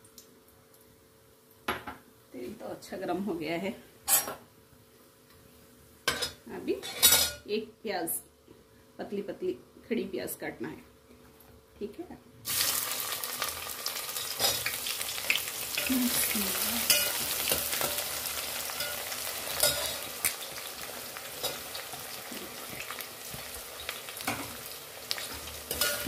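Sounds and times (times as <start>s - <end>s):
onions sizzling in hot oil: 12.4s - 26.0s.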